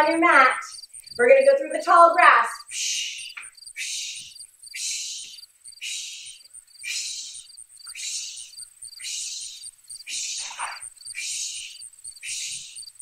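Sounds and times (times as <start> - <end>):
crickets chirping: 0.0 - 13.0
swishing through tall grass: 3.8 - 12.8.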